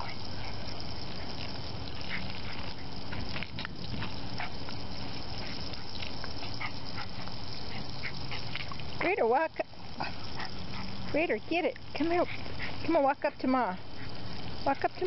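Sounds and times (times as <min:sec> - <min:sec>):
garden hose spraying water: 0:00.0 - 0:15.0
dog snapping at water: 0:00.8 - 0:09.0.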